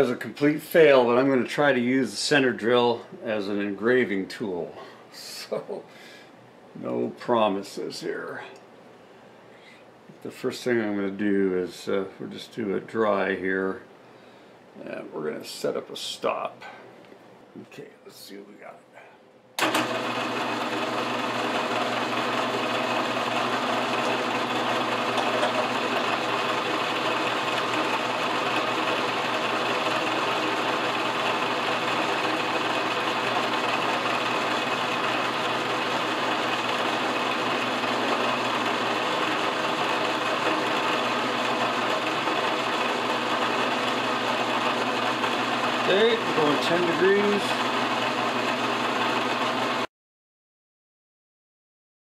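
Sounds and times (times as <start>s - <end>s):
milling machine spindle humming: 19.6s - 49.9s.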